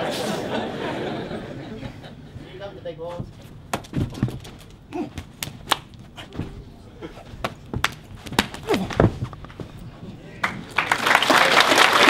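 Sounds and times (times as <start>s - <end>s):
hand strikes slapping and thudding: 3.7s - 6.6s, 7.4s - 9.4s.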